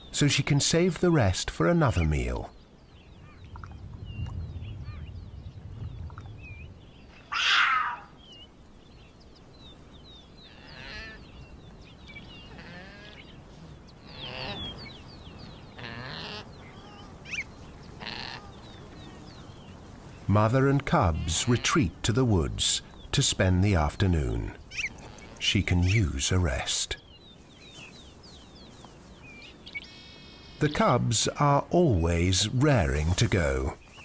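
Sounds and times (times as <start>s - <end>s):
puma mewing call: 7.3s - 8.2s, 18.0s - 18.6s.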